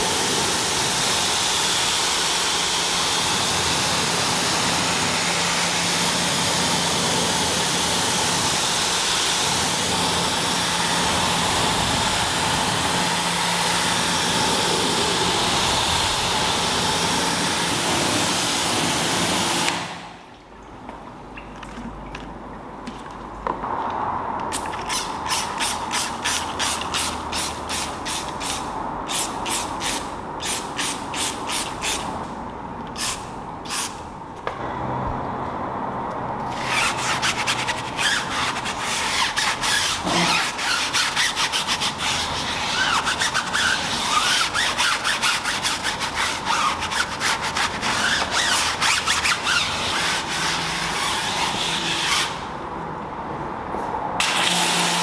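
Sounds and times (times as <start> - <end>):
stiff brush scrubbing tyre: 36.5 - 52.5.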